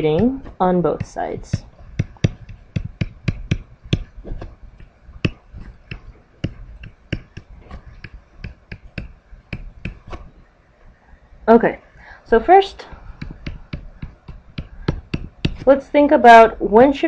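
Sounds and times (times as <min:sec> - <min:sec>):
stylus clicking on tablet screen: 0:01.0 - 0:04.2, 0:04.8 - 0:10.3, 0:12.8 - 0:15.7.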